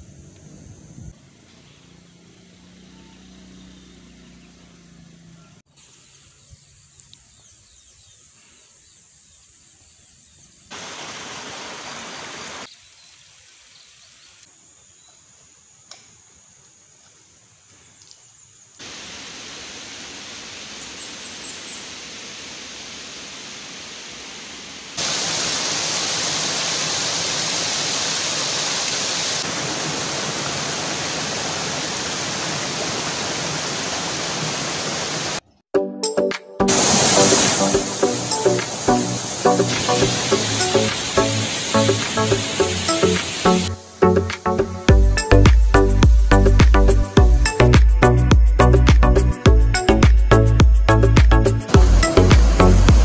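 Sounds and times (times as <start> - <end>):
faint countryside ambience: 0.0 - 35.6, 36.7 - 53.0
rushing water: 10.7 - 12.7, 18.8 - 35.4, 36.7 - 44.4, 51.2 - 53.0
waterfall pouring over boulders: 10.7 - 12.7, 18.8 - 35.4, 36.7 - 43.7, 51.7 - 53.0.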